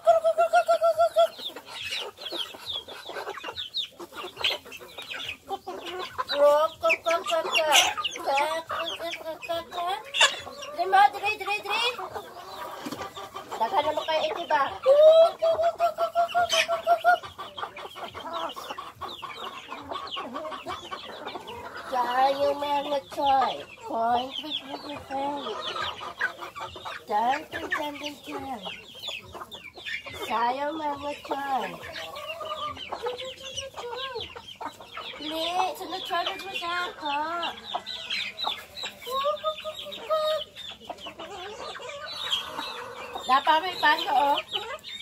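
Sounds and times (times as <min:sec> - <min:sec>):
chickens clucking and chirping: 0:00.0 - 0:45.0
chickens pecking feed: 0:00.0 - 0:45.0.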